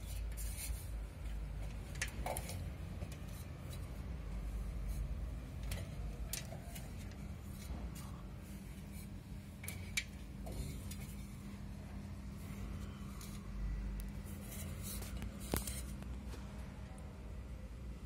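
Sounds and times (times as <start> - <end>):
scratching on plastered wall: 0.0 - 16.4
steady low hum: 0.0 - 18.0.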